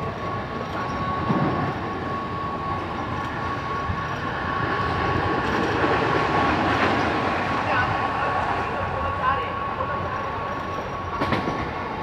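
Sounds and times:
high whine of electric train: 0:00.0 - 0:12.0
train wheels rumbling on rails: 0:00.0 - 0:12.0.

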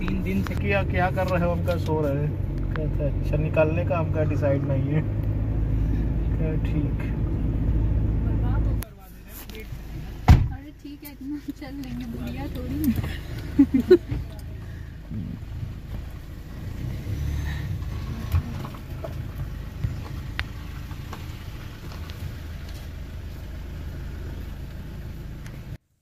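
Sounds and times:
car engine and road rumble: 0:00.0 - 0:26.0.

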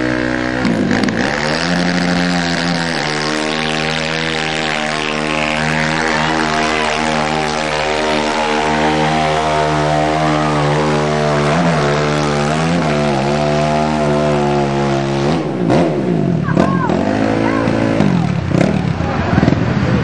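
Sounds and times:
atv engine at high revs: 0:00.0 - 0:20.0.

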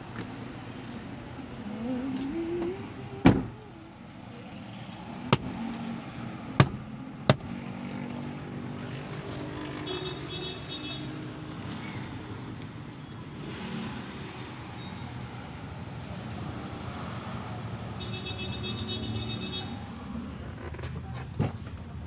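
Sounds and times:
traffic hum inside a car: 0:00.0 - 0:22.0
sharp knocks: 0:06.6 - 0:07.5.

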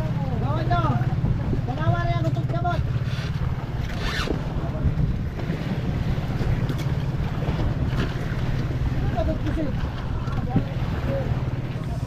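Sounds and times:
boat engine running: 0:00.0 - 0:12.0
short zip-like scrape: 0:03.0 - 0:04.4.

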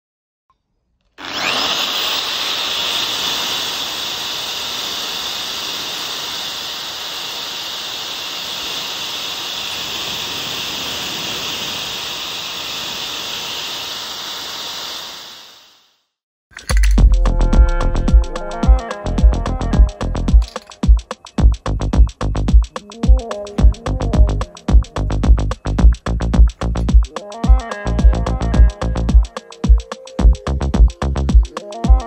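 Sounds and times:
drill grinding steel: 0:01.1 - 0:15.5.

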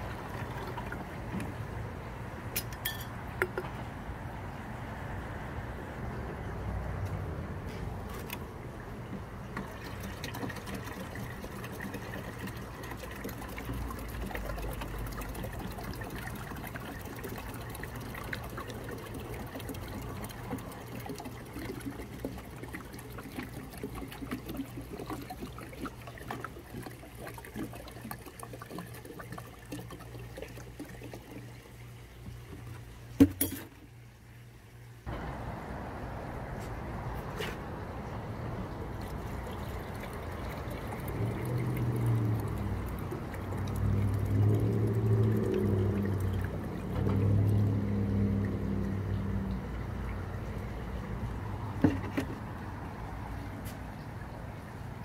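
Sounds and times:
liquid pouring into plastic can: 0:09.5 - 0:31.8, 0:38.9 - 0:49.3.

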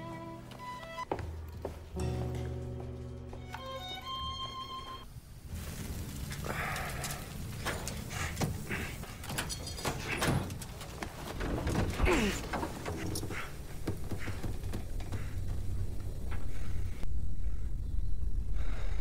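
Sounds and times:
falling groan: 0:06.2 - 0:10.7, 0:11.4 - 0:17.8.

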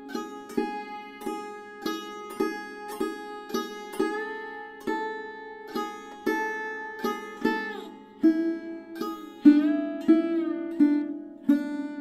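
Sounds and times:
sarod plucked notes: 0:00.0 - 0:12.0.

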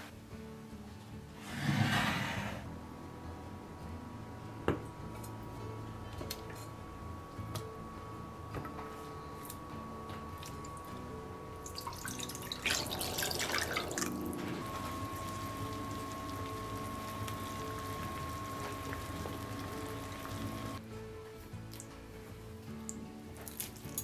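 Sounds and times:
water splashing into a pot: 0:11.6 - 0:14.2
water boiling in a pot: 0:11.6 - 0:20.8.

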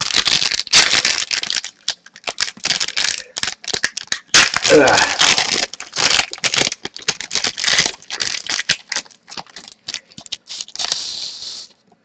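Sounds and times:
card packaging crinkling: 0:00.0 - 0:11.7.

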